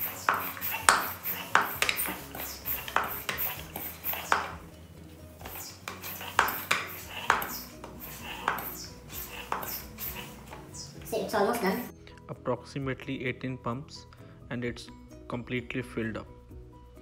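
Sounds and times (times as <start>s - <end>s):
floor pump strokes: 0.0s - 4.8s, 5.4s - 11.9s.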